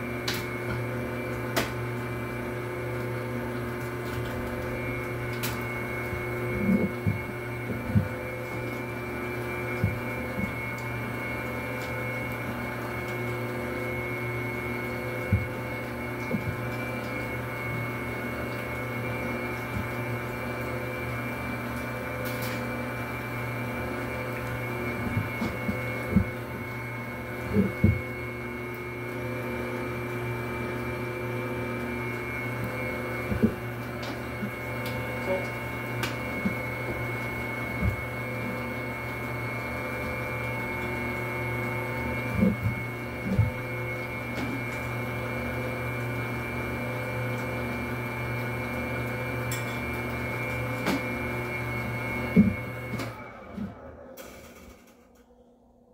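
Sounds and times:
dough mixer motor humming: 0.0s - 55.9s.

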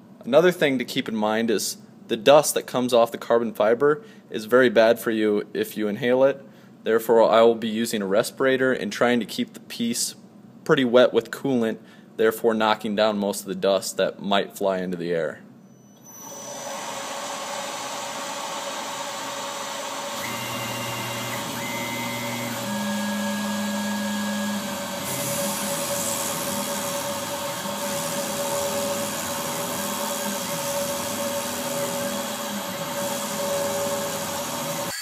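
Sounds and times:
axis motors whining: 15.7s - 35.0s
milling machine spindle whine: 16.0s - 35.0s.

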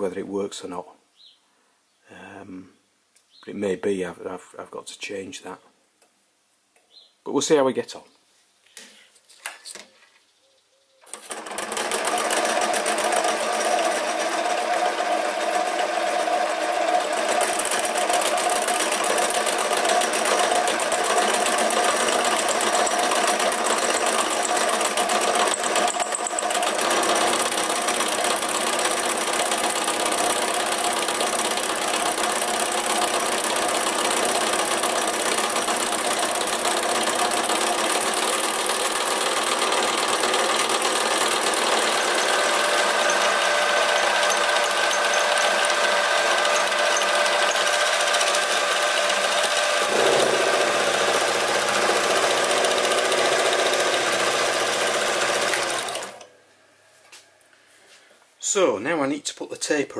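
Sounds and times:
lathe motor and gear whine: 42.0s - 56.2s.

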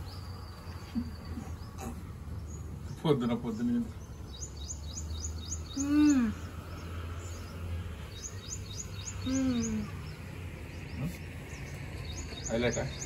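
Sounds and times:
small birds chirping: 0.0s - 13.0s
person humming mmm tasting food: 5.8s - 6.5s, 9.2s - 10.0s.

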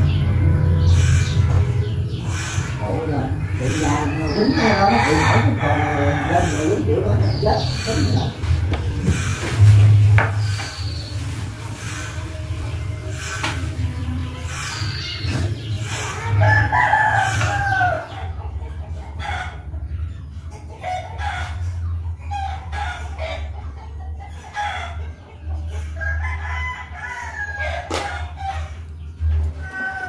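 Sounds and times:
steady low hum: 0.0s - 29.8s
rooster crowing: 3.9s - 6.7s, 16.4s - 18.1s, 26.0s - 28.6s, 29.6s - 30.0s.

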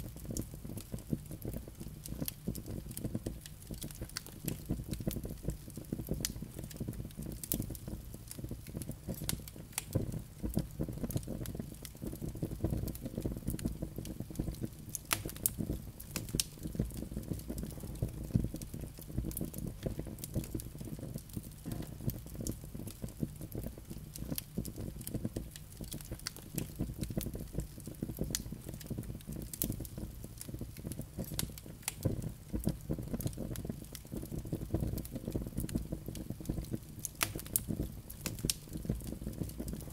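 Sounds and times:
fire flames rumbling: 0.0s - 39.9s
wood crackling and popping: 0.0s - 39.9s.

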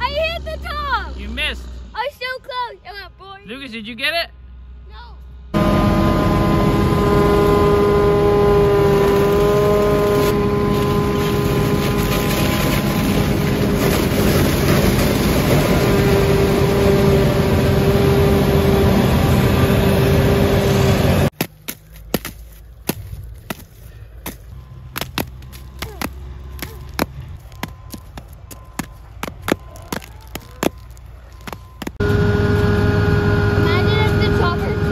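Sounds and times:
forage harvester whining din: 5.6s - 34.9s
corn stubble snapping underfoot: 21.4s - 32.0s.

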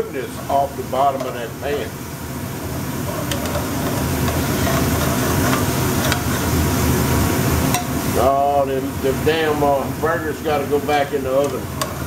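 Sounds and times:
onions sizzling in a pan: 0.0s - 12.0s
metal spatula scraping a pan: 3.0s - 6.7s.

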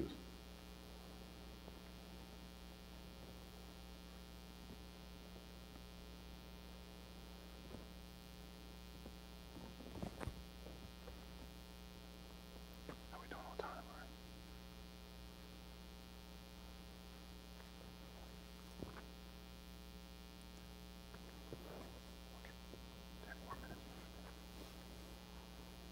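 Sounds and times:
electrical mains hum: 0.0s - 25.9s
faint rustles: 9.5s - 11.4s, 21.1s - 25.8s.

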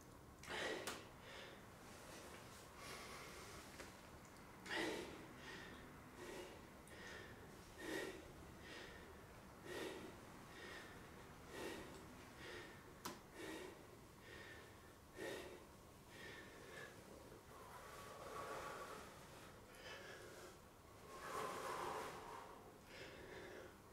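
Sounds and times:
faint puffs of breath: 0.5s - 3.8s, 4.7s - 23.9s.

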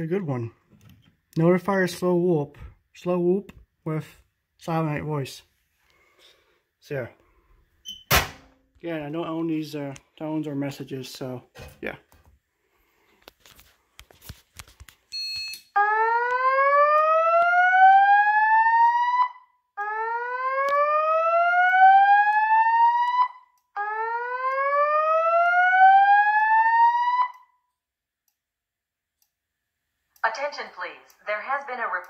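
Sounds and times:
short beep: 15.1s - 15.7s
fire alarm whoop tone: 15.2s - 27.7s.

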